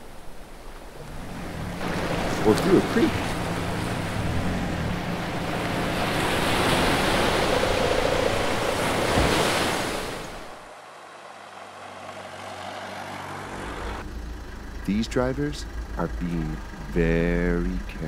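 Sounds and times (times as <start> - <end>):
vehicle splashing through water: 0.8 - 14.0.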